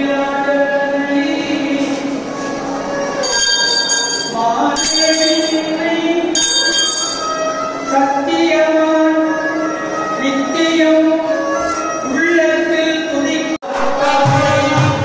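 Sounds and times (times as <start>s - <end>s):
devotional chant with music: 0.0s - 3.3s, 7.4s - 15.0s
bell ringing: 3.2s - 7.7s.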